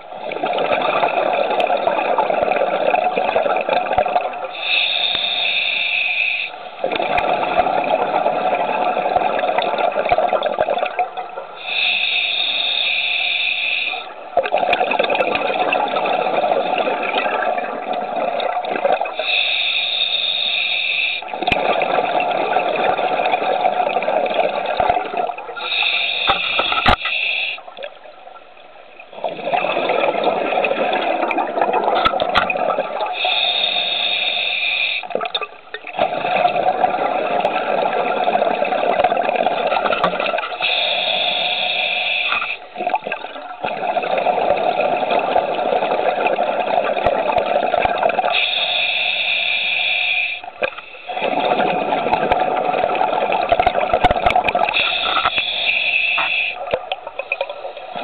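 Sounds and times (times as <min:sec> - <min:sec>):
regulator hissing inhalation: 0:04.6 - 0:06.6, 0:11.6 - 0:14.1, 0:19.2 - 0:21.2, 0:25.6 - 0:27.7, 0:33.1 - 0:35.1, 0:40.6 - 0:42.6, 0:48.3 - 0:51.2, 0:54.7 - 0:56.6.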